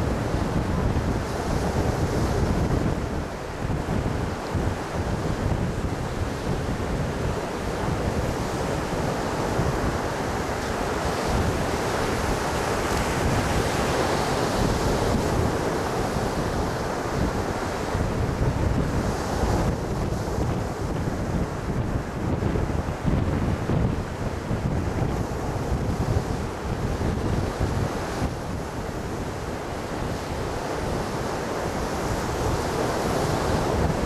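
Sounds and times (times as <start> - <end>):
ocean surf breaking: 0.0 - 34.0
wind buffeting microphone: 0.0 - 34.0.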